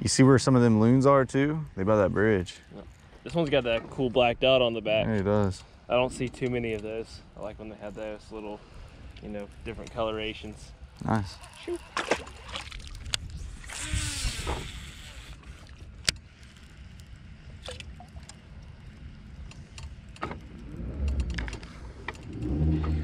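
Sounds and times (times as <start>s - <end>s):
wind and water noise: 0.0s - 23.0s
low motor hum: 6.6s - 23.0s
fishing reel cranking: 13.0s - 16.8s
sharp clicks: 19.4s - 22.5s.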